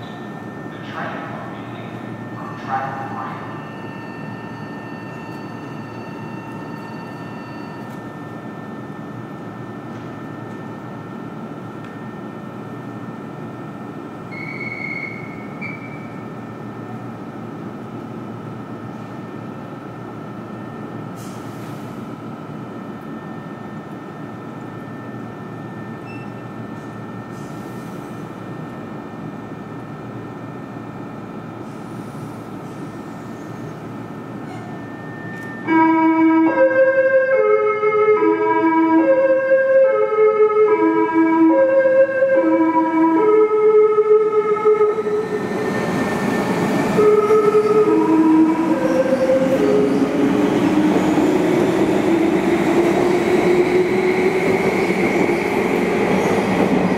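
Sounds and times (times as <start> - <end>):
electric train humming and whining: 0.0 - 56.9.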